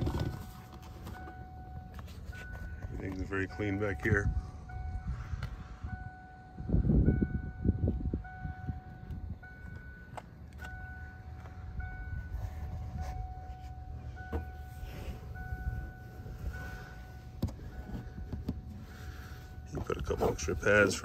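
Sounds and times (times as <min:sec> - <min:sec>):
electronic beep tone: 0:00.1 - 0:18.3
low rumble: 0:04.0 - 0:19.7.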